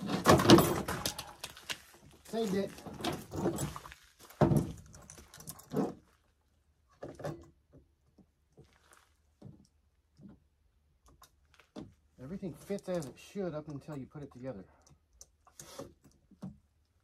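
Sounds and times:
chain clicks and rattles: 2.8 - 4.0, 4.6 - 6.0.

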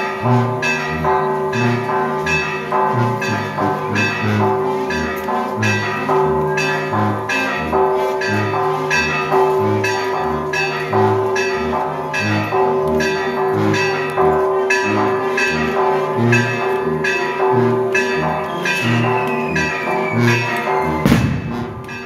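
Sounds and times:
church bells ringing: 0.0 - 22.0
faint falling whistle: 18.5 - 21.2.

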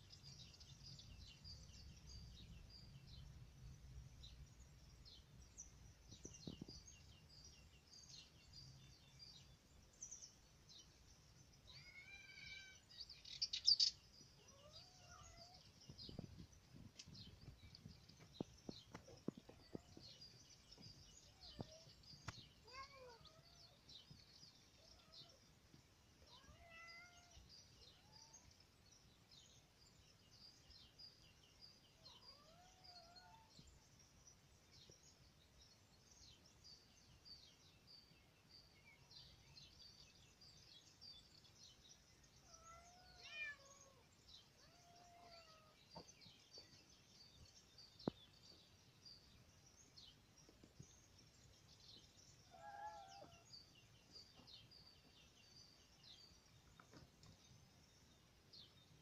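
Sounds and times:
faint cat meows: 11.7 - 12.9, 14.4 - 15.7, 21.4 - 23.8, 26.2 - 28.5, 32.0 - 33.6, 42.4 - 46.1, 52.5 - 53.5
high bird chirping: 11.7 - 24.2.

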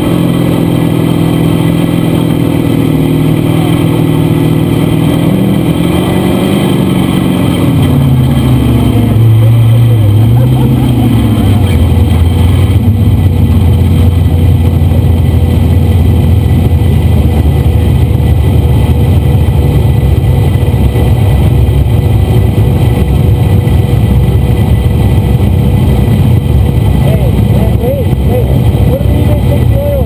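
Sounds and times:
engine running at high revs: 0.0 - 30.0.

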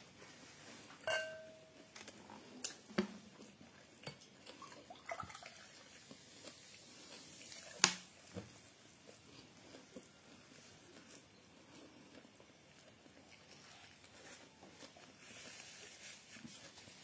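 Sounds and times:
tableware clicks and taps: 1.0 - 1.7
ringing clink: 1.1 - 1.8.

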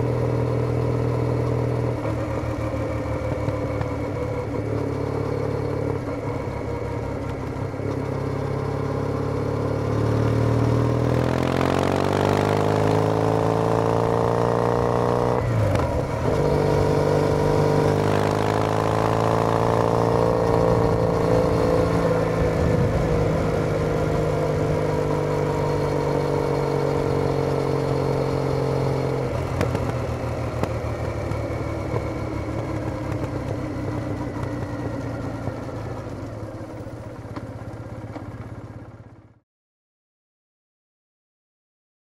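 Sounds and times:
motorcycle engine while riding: 0.0 - 39.4
rushing wind noise: 20.5 - 24.6.

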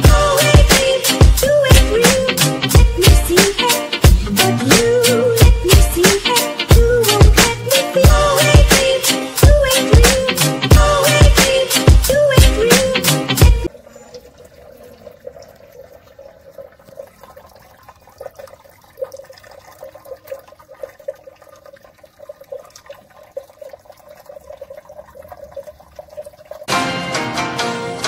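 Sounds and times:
water trickling into plastic bottle: 13.7 - 26.7.

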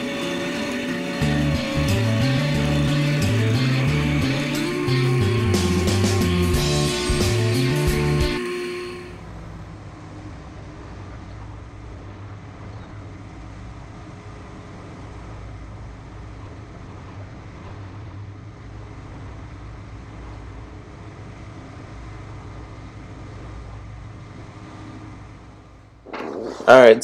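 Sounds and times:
tractor diesel engine droning: 0.0 - 13.8.

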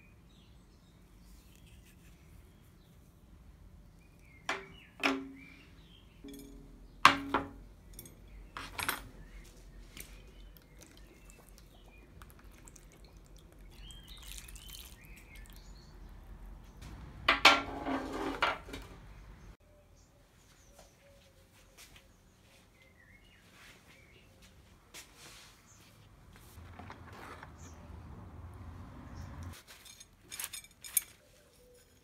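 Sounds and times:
iron parts clinking on table: 6.2 - 9.4, 29.7 - 32.0.

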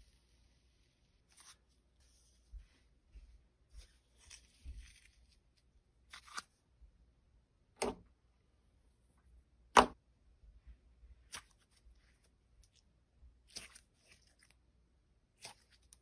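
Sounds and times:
slime sticky crackles: 13.4 - 14.6, 15.3 - 16.0.

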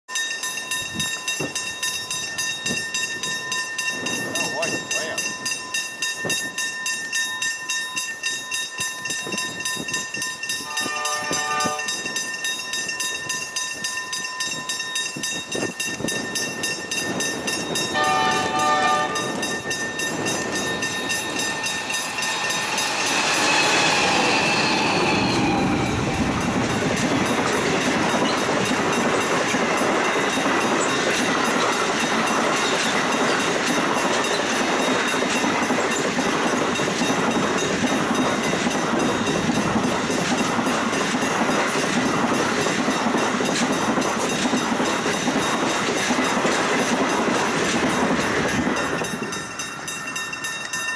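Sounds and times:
level crossing bell ringing: 0.1 - 28.6
train carriages rumbling over rails: 0.1 - 50.9
train horn blasts: 10.6 - 12.0, 18.0 - 19.4.

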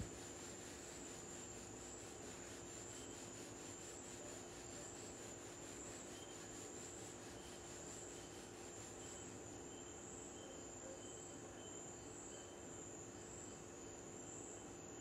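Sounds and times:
hiss: 0.0 - 9.0.

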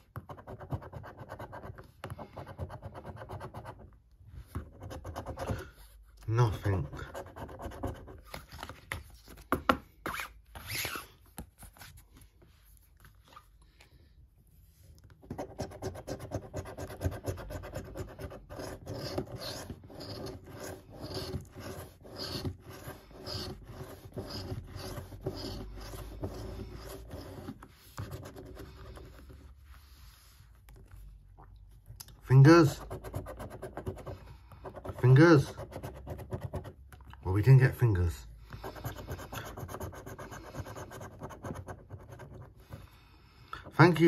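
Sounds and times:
coin scratching a scratchcard: 15.3 - 28.8.

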